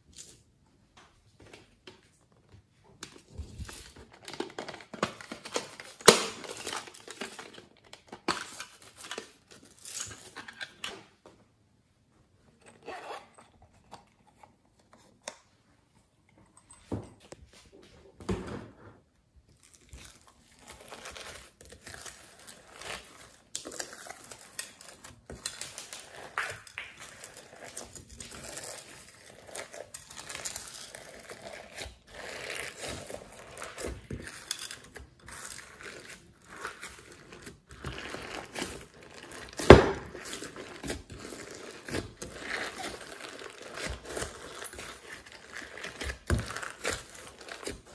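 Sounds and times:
slime crackling and crinkling: 19.5s - 47.9s.

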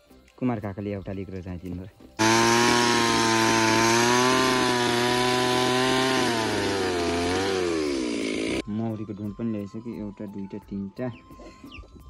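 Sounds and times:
chainsaw engine running: 2.2s - 8.6s.

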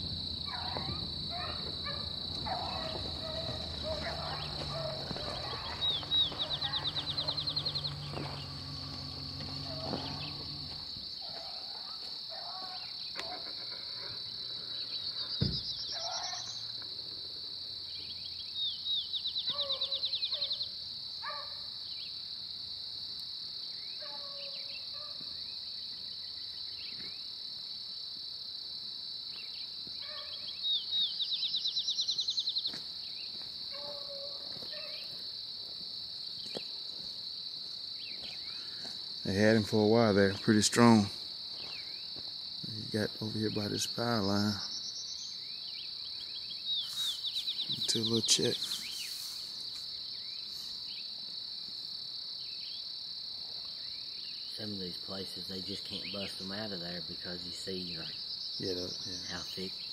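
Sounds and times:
distant dogs baying: 0.0s - 16.7s, 19.5s - 21.7s, 33.7s - 35.2s
insects chorus: 0.0s - 59.9s.

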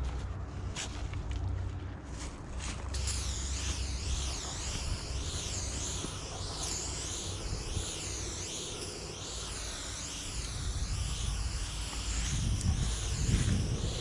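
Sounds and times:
aerosol spray can hissing: 3.0s - 14.0s
wind rumble on microphone: 10.3s - 14.0s.

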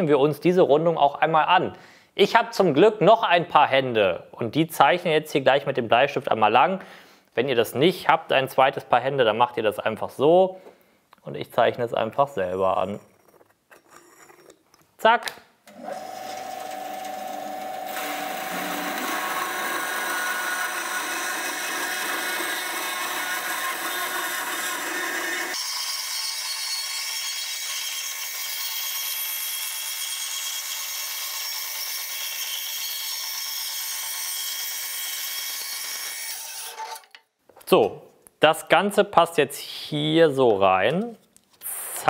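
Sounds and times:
bandsaw cutting wood: 15.7s - 37.2s.

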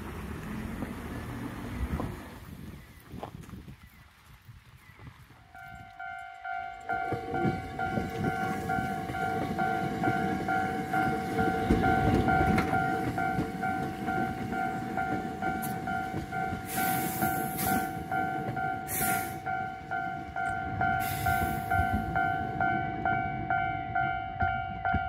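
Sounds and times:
train wheels rumbling on rails: 0.0s - 3.6s, 5.5s - 25.0s
crossing warning bell ringing: 5.6s - 25.0s.

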